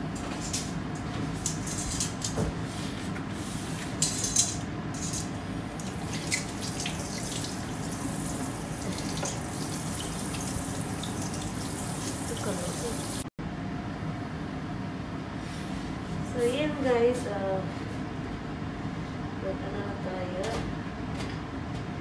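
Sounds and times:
gas burner hissing: 0:05.6 - 0:13.3.

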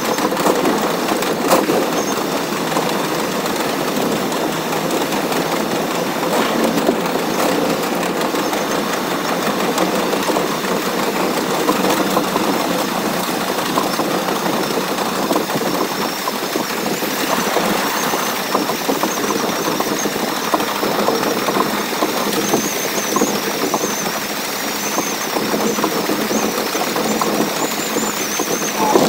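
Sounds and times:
train wheels rattling: 0:00.0 - 0:29.0
high wavering whine: 0:28.5 - 0:29.0.

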